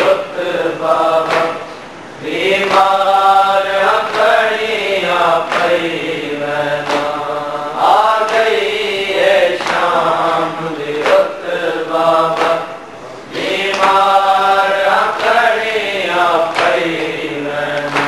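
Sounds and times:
men chanting a lament: 0:00.0 - 0:18.0
sharp slaps: 0:01.2 - 0:01.7, 0:02.6 - 0:03.1, 0:03.9 - 0:04.6, 0:05.5 - 0:05.9, 0:06.8 - 0:07.3, 0:08.1 - 0:08.8, 0:09.5 - 0:10.2, 0:10.9 - 0:11.3, 0:12.3 - 0:14.4, 0:16.5 - 0:17.1, 0:17.7 - 0:18.0.

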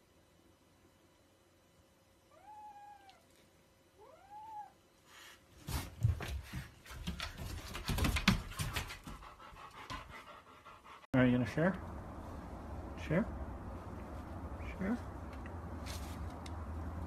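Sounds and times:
rustling and thumps: 0:05.6 - 0:09.3.

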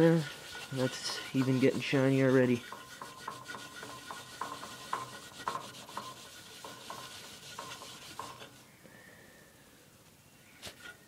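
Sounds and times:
rag rubbing and squeaking on metal: 0:00.0 - 0:08.7.

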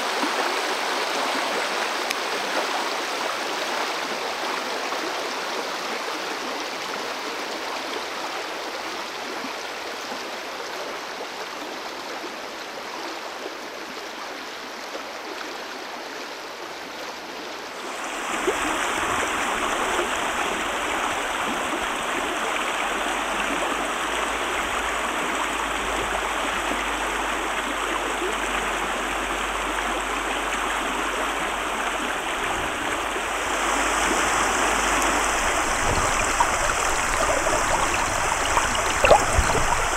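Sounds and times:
stream water rushing over rocks: 0:00.0 - 0:11.8, 0:16.6 - 0:39.9.

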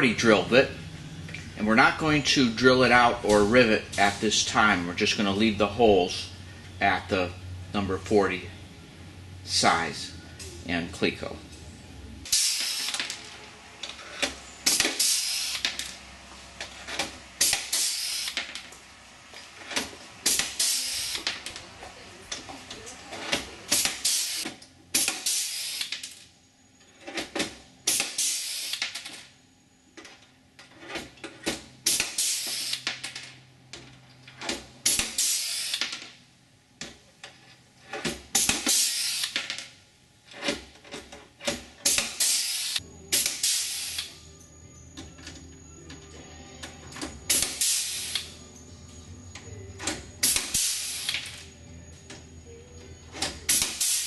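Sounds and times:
pneumatic rivet gun hiss and click: 0:12.3 - 0:13.2, 0:14.6 - 0:15.8, 0:17.4 - 0:18.5, 0:20.2 - 0:21.4, 0:23.7 - 0:26.1, 0:27.9 - 0:29.0, 0:31.9 - 0:32.9, 0:34.8 - 0:35.9, 0:38.4 - 0:39.4, 0:41.8 - 0:44.2, 0:47.3 - 0:48.4, 0:50.2 - 0:51.4, 0:53.5 - 0:54.0.

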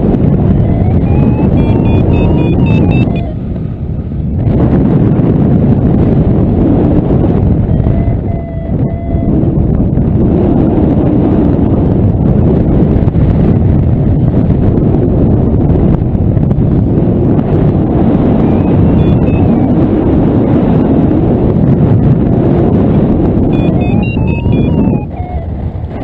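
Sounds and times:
wind buffeting microphone: 0:00.0 - 0:26.0
faint short high beeps: 0:00.6 - 0:03.4, 0:07.9 - 0:09.4, 0:18.4 - 0:19.7, 0:23.5 - 0:25.5.

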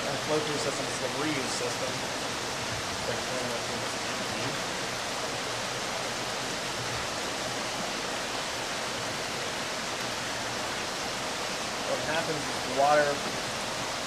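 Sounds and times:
water rushing through trays: 0:00.0 - 0:14.0.

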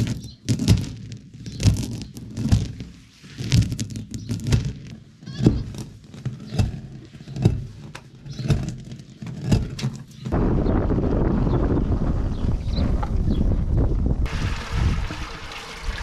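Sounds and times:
stone hand mill grinding: 0:00.0 - 0:10.3.

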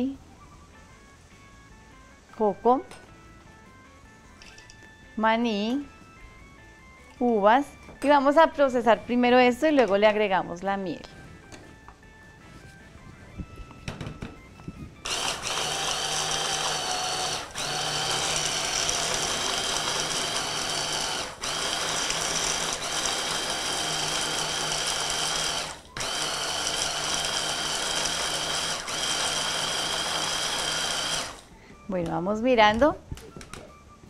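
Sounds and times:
blender motor grinding seeds: 0:15.0 - 0:31.5.

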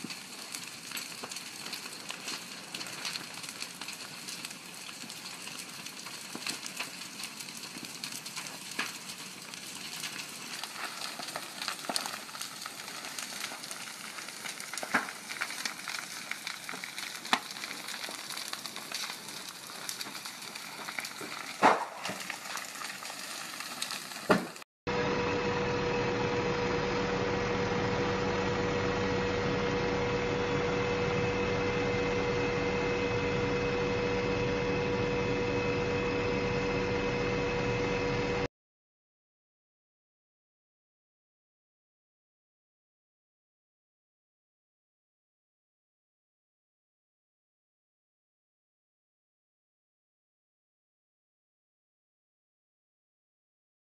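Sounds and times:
fire crackling and popping: 0:00.0 - 0:24.6
steady tonal hum: 0:24.9 - 0:38.5.

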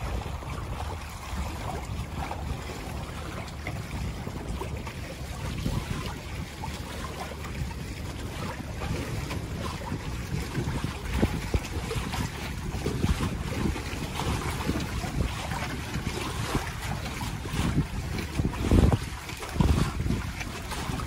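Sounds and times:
small splashes and ticks: 0:00.0 - 0:21.0
water rushing along hulls: 0:00.0 - 0:21.0
wind buffeting microphone: 0:00.0 - 0:21.0.

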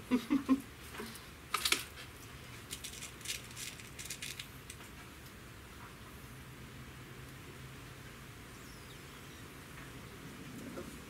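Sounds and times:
pellets rattling in metal tin: 0:02.7 - 0:04.8.

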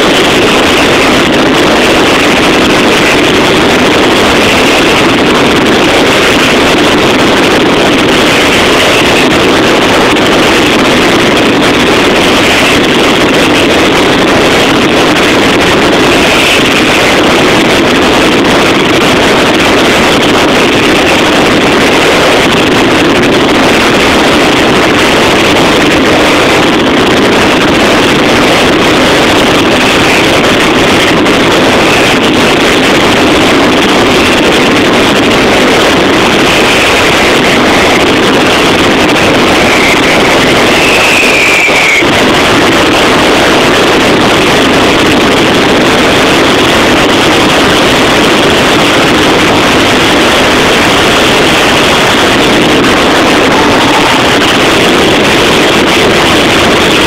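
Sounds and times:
firecracker barrage: 0:00.0 - 0:57.0.

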